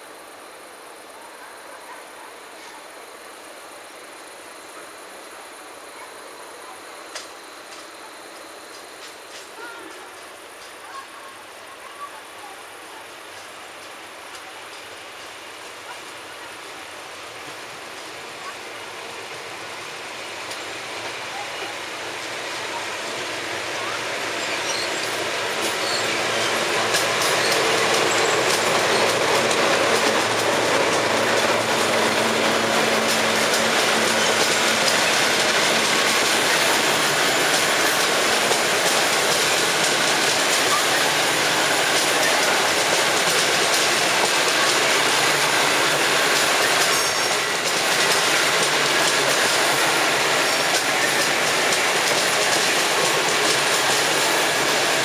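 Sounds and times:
train wheels rolling on rails: 0:00.0 - 0:55.0
clickety-clack over rail joints: 0:07.1 - 0:07.9, 0:08.7 - 0:11.1, 0:13.3 - 0:16.4, 0:20.4 - 0:55.0.

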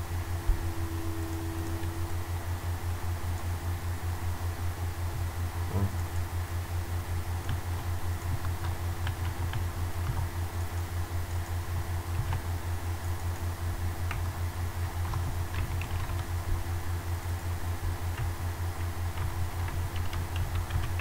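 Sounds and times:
steady low hum: 0:00.0 - 0:21.0
keyboard keystrokes: 0:12.2 - 0:12.4, 0:19.2 - 0:21.0.

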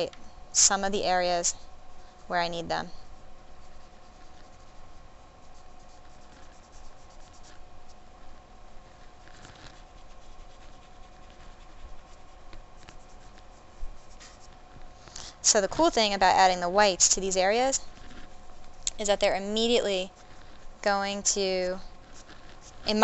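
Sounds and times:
pastel scratching on paper: 0:03.5 - 0:14.7, 0:15.8 - 0:23.0.

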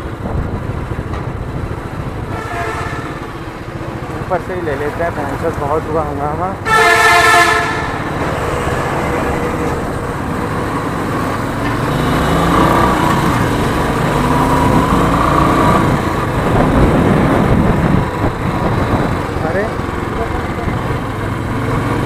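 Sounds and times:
wind on microphone: 0:00.0 - 0:03.1, 0:14.3 - 0:19.4
motorcycle engine: 0:00.0 - 0:22.0.

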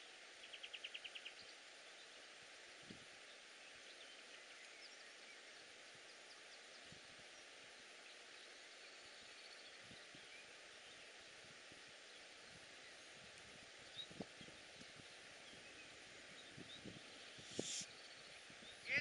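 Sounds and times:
faint outdoor background hiss: 0:00.0 - 0:19.0
faint high bird chirps: 0:13.9 - 0:19.0.

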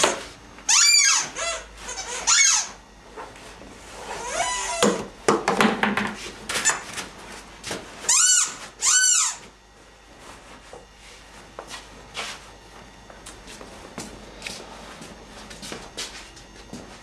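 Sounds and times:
loud high squeaks: 0:00.7 - 0:02.8, 0:04.0 - 0:05.1, 0:08.0 - 0:09.5.

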